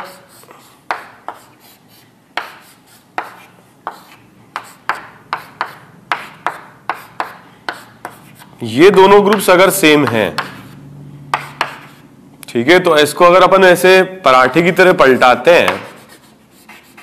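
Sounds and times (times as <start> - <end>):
scraping strokes on a board: 0.0 - 9.1, 10.3 - 12.1, 15.0 - 17.0
taps on a board: 9.2 - 10.6.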